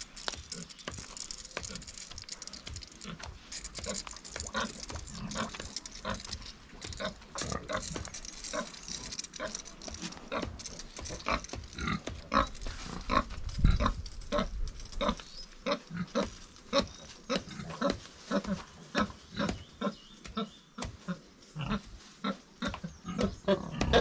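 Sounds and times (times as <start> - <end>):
pig grunting: 22.6 - 24.0.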